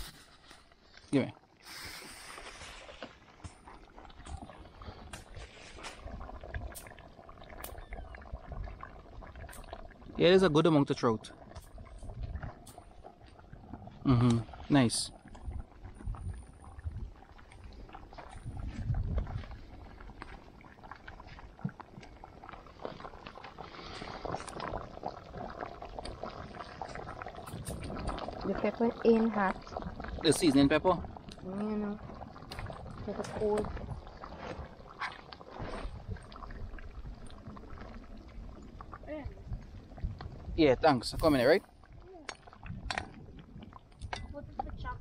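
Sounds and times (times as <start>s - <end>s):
broth bubbling in a pot: 0.0s - 45.0s.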